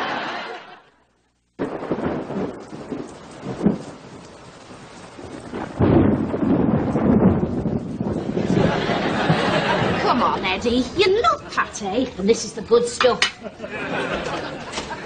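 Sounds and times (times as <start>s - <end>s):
steady rain: 1.2s - 15.0s
rumbling thunder: 1.6s - 11.0s.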